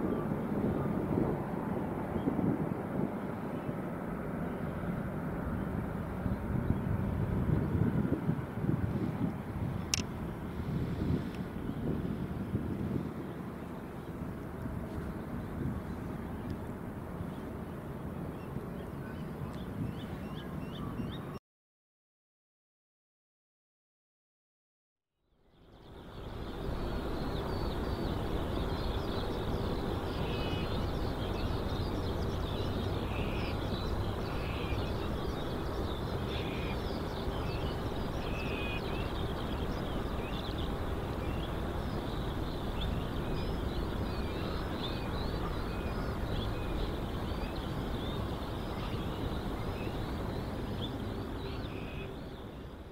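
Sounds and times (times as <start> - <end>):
birds chirping: 15.0 - 21.4, 25.5 - 52.9
steady low rumble: 25.6 - 52.9.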